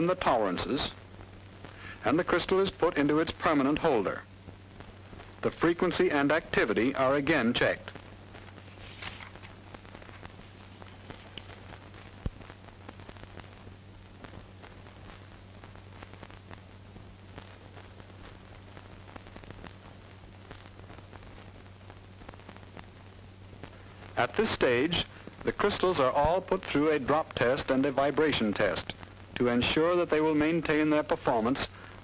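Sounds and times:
film soundtrack hiss and crackle: 0:00.0 - 0:32.0
low steady hum: 0:00.0 - 0:32.0.

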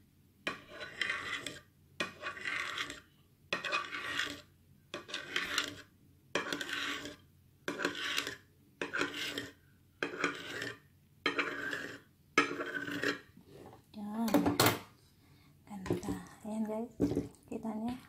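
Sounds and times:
knife scraping ceramic platter: 0:00.5 - 0:13.8.

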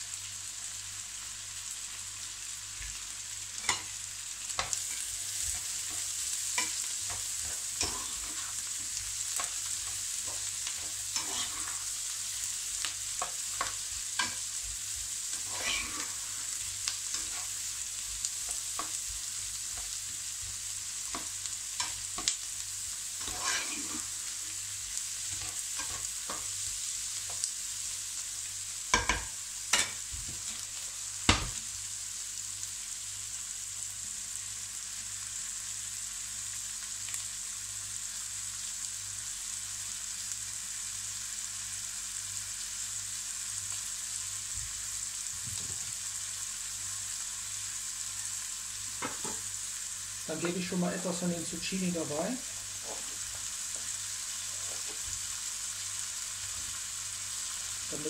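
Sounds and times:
vegetables sizzling in frying pan: 0:00.0 - 0:58.0
spatula scraping pan: 0:04.5 - 0:12.5, 0:13.1 - 0:17.7, 0:23.2 - 0:24.6.

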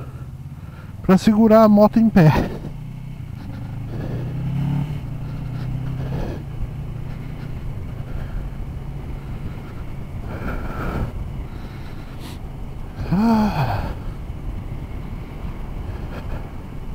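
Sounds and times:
motorcycle engine running: 0:00.0 - 0:16.9
road and wind noise: 0:00.0 - 0:16.9.

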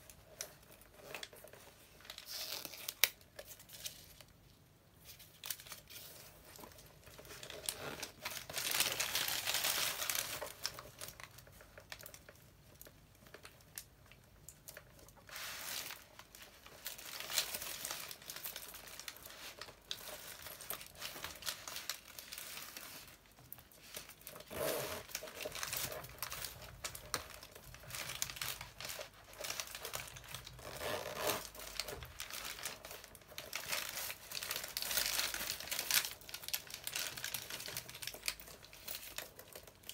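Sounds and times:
bubble wrap crinkling: 0:00.0 - 0:39.9.

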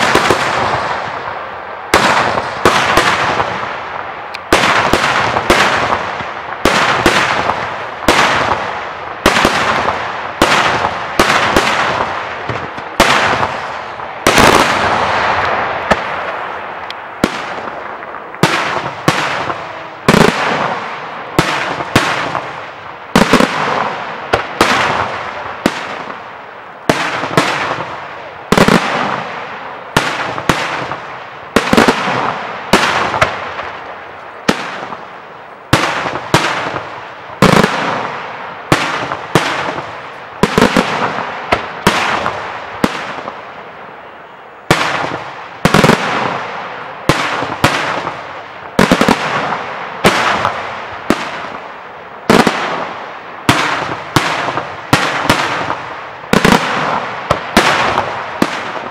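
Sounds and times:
fireworks bangs echoing: 0:00.0 - 0:58.9.

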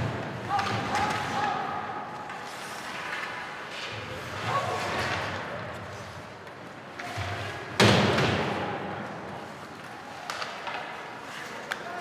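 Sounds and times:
loud bang against rink boards: 0:07.1 - 0:09.0.

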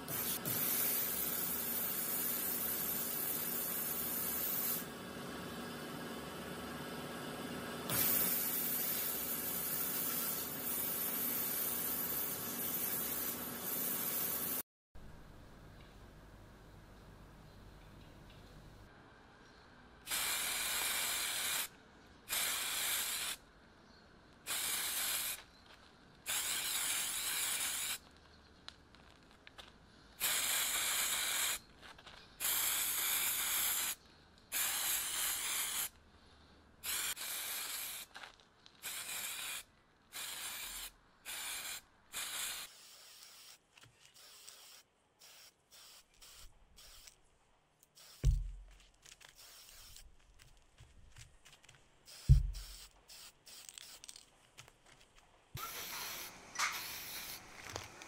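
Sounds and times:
spray paint can hissing: 0:00.0 - 0:04.9, 0:07.9 - 0:14.6, 0:20.1 - 0:21.7, 0:22.3 - 0:23.4, 0:24.4 - 0:28.2, 0:30.2 - 0:36.0, 0:36.8 - 0:47.2, 0:47.9 - 0:50.6, 0:52.0 - 0:54.2, 0:55.6 - 0:58.0
loud low thump: 0:48.2 - 0:48.6, 0:52.3 - 0:52.6.

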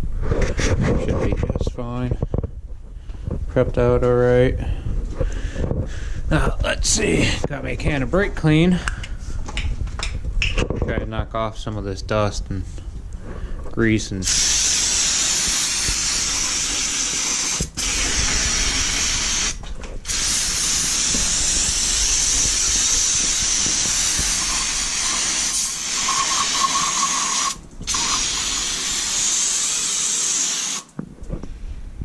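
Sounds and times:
aerosol can spraying: 0:14.2 - 0:30.9.

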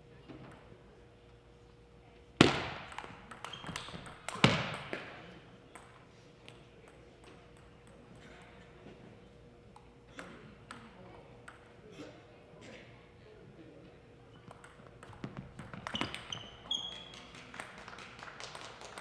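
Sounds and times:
table tennis ball cracks: 0:02.4 - 0:05.2.

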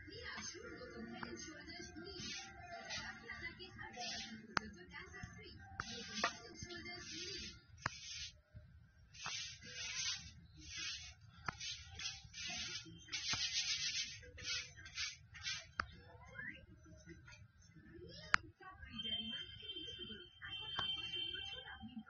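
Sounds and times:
hissing rubbing bursts: 0:02.0 - 0:04.5, 0:05.8 - 0:08.4, 0:09.2 - 0:15.8.

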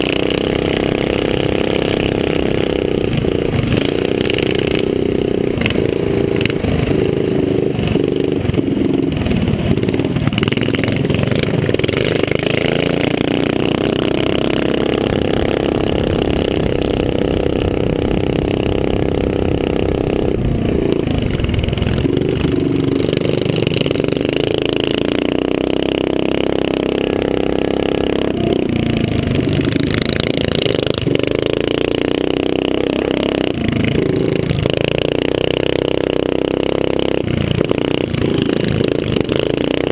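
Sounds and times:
motorbike engine revving: 0:00.0 - 0:39.9
wind noise on microphone: 0:15.0 - 0:22.6.

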